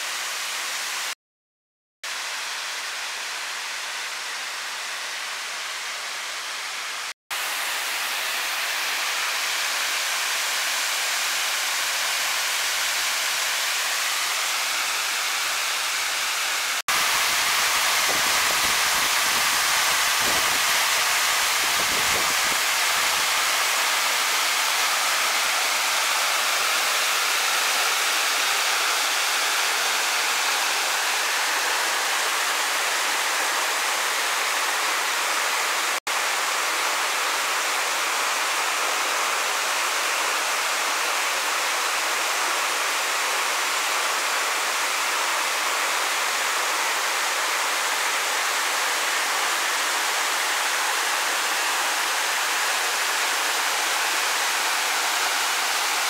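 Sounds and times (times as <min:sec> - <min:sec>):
waterfall pouring onto rocks: 0:07.5 - 0:34.7, 0:39.5 - 0:56.0.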